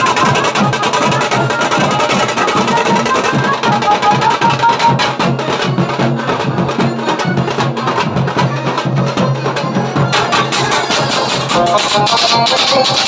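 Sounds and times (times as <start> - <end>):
loud driving drumming: 0.0 - 13.0
high melody line: 8.6 - 13.0.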